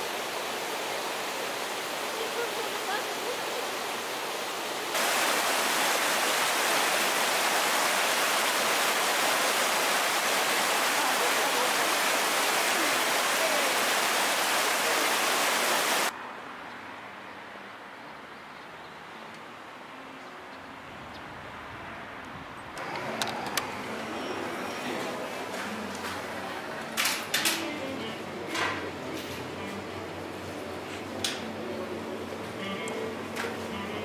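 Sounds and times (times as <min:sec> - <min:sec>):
stream rushing over rocks: 0:00.0 - 0:16.2.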